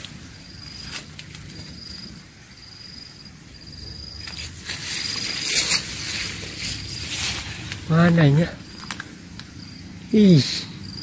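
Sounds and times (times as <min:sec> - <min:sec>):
leaves rustling: 0:00.0 - 0:10.4
high insect hum: 0:00.0 - 0:11.0
footsteps through plants: 0:04.2 - 0:08.4.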